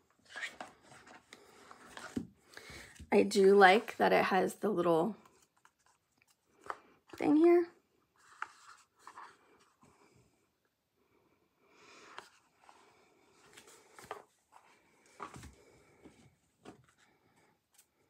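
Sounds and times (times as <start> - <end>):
cardboard box and cards handling: 0.1 - 4.0, 5.2 - 10.0, 12.1 - 17.2.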